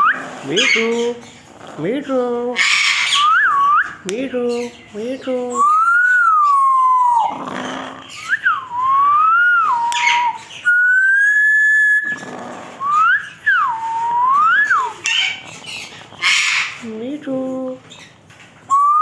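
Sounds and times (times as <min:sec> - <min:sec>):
parrot whistling a tune: 0:08.2 - 0:12.2, 0:12.8 - 0:15.4.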